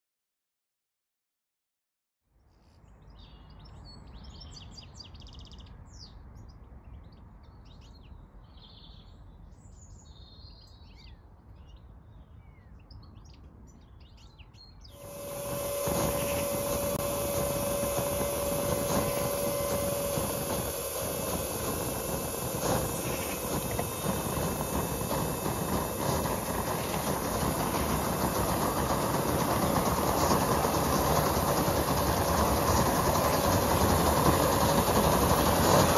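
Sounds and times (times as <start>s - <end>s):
birds chirping: 14.8s - 35.9s
held tone: 15.0s - 35.9s
low outdoor rumble: 15.0s - 35.9s
steam locomotive hissing: 15.0s - 35.9s.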